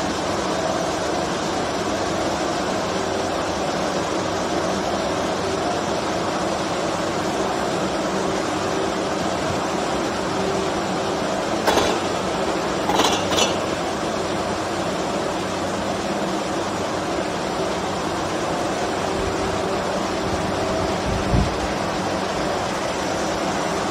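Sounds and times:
machinery hum: 0:00.0 - 0:23.9
wire spools knocking together: 0:11.6 - 0:12.1, 0:12.8 - 0:13.7.

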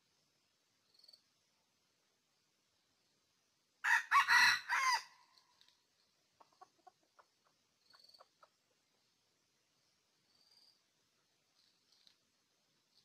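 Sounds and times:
rooster crowing: 0:03.8 - 0:05.2
faint clucking: 0:06.4 - 0:09.0.

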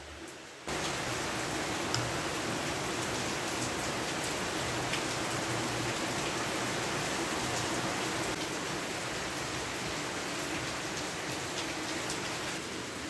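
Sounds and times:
steady rain hiss: 0:00.0 - 0:13.0.

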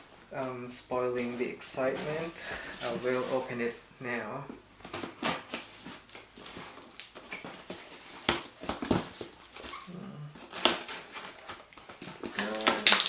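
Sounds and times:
tape and cardboard ripping: 0:04.8 - 0:13.0.

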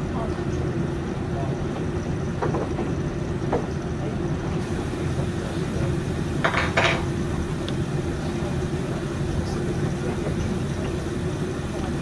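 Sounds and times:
washing machine drum churning: 0:04.6 - 0:12.0.

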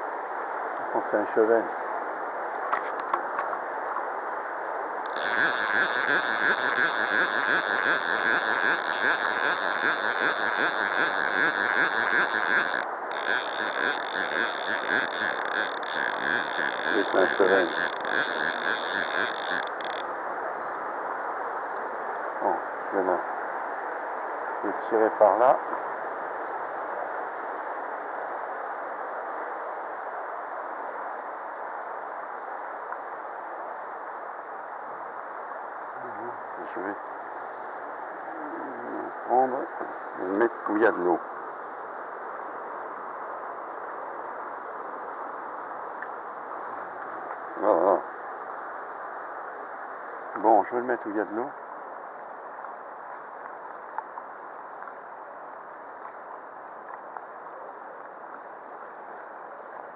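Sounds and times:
river water running over stones: 0:05.1 - 0:20.1.

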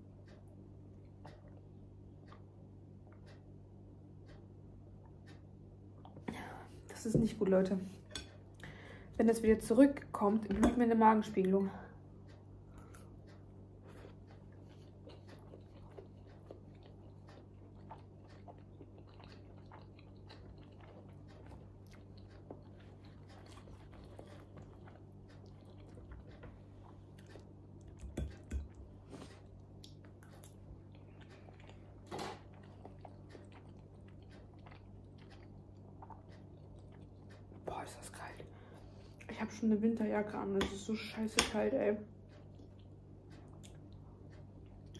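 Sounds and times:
faint steady hum: 0:00.0 - 0:44.9
close chewing mouth sounds: 0:12.3 - 0:39.3, 0:42.2 - 0:44.9.

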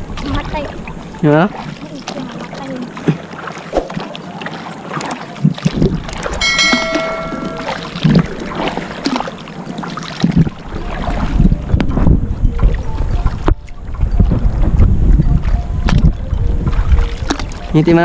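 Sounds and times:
paddle splashing in water: 0:00.0 - 0:17.8
wind buffeting microphone: 0:05.3 - 0:18.0
ringing chime sound effect: 0:06.4 - 0:08.1.

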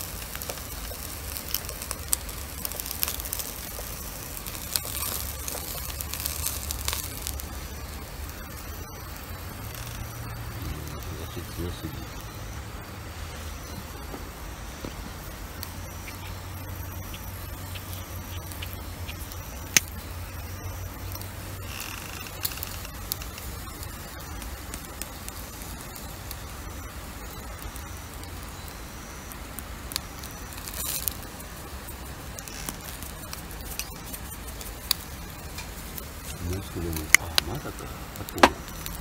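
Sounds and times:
skewers crackling on charcoal grill: 0:00.0 - 0:39.0
sharp pops: 0:13.6 - 0:20.0, 0:32.3 - 0:39.0.

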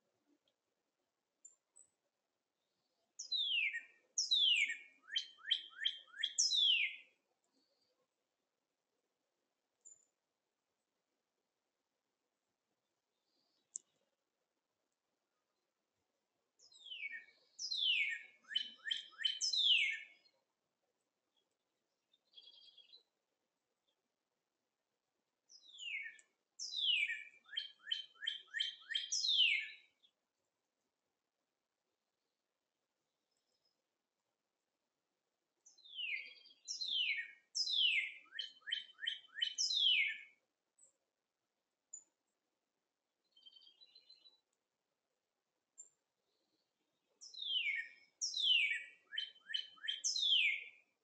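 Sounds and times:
songbird whistling: 0:03.3 - 0:07.0, 0:16.8 - 0:20.0, 0:25.6 - 0:29.8, 0:35.9 - 0:40.2, 0:47.3 - 0:50.7.

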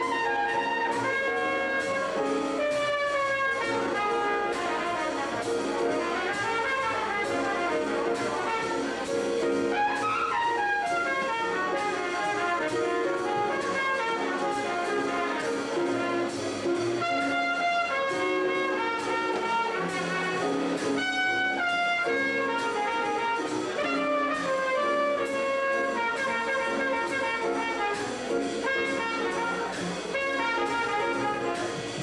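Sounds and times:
band accompaniment: 0:00.0 - 0:32.0
trumpet melody: 0:00.0 - 0:32.0.

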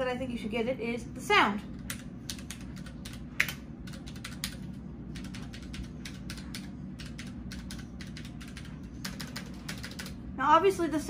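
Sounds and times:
mechanical keyboard typing: 0:01.7 - 0:10.2.

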